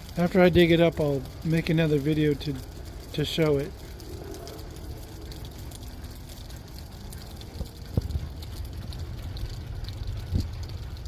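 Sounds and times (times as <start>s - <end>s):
light rain pattering: 0.0s - 11.0s
wind rumble on microphone: 3.7s - 11.0s.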